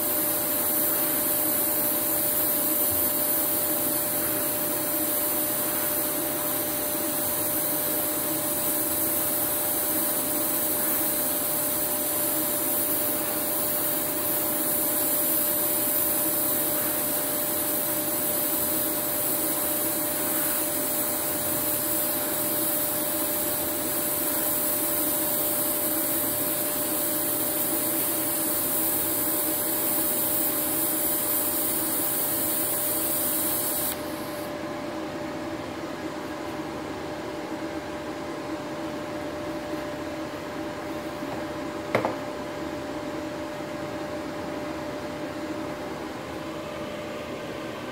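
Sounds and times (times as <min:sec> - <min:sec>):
welding arc hissing: 0:00.0 - 0:34.6.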